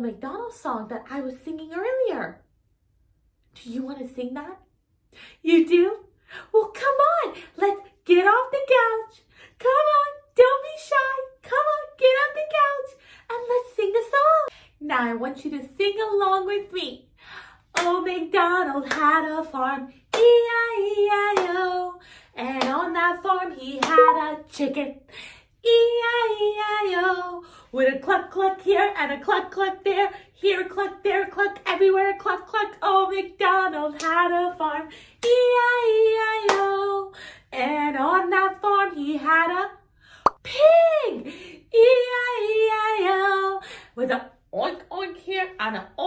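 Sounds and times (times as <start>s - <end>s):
woman singing: 5.5s - 17.0s, 17.7s - 39.8s, 40.4s - 46.0s
hand clapping: 17.8s - 18.0s, 18.9s - 19.1s, 23.8s - 24.2s.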